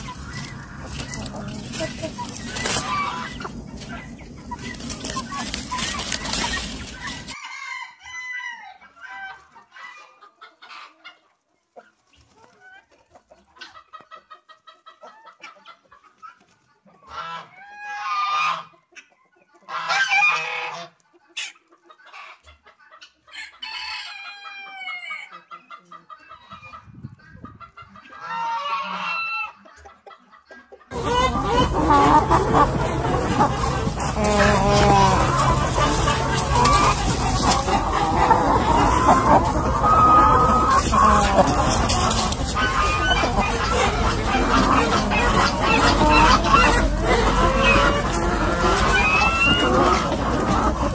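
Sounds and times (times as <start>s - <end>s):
long loud chicken calls: 0.0s - 11.0s, 23.3s - 25.4s, 30.9s - 50.9s
chickens clucking: 0.0s - 50.9s.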